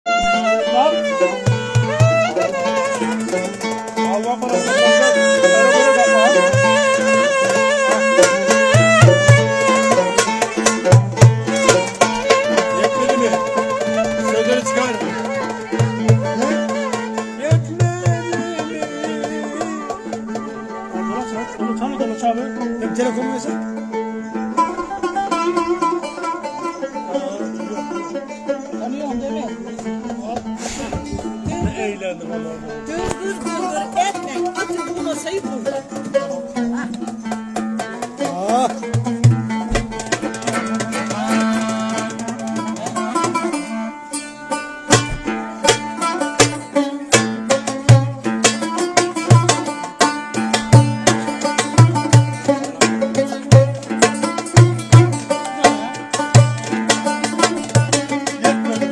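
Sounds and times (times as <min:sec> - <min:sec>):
banjo folk tune: 0:00.0 - 0:58.9
clarinet melody: 0:00.1 - 0:03.8, 0:04.5 - 0:22.4
plucked and strummed lute: 0:00.1 - 0:58.9
low thumps: 0:29.5 - 0:33.7, 0:38.8 - 0:43.4, 0:44.8 - 0:46.0.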